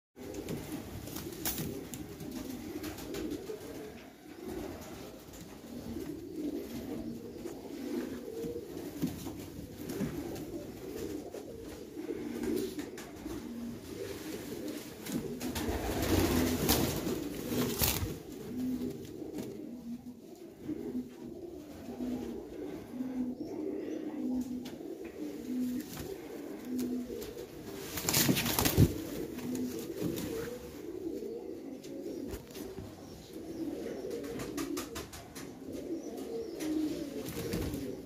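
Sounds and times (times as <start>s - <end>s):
birds rustling in wire cage: 0.2s - 20.0s, 25.2s - 32.7s
pigeons cooing: 0.2s - 38.0s.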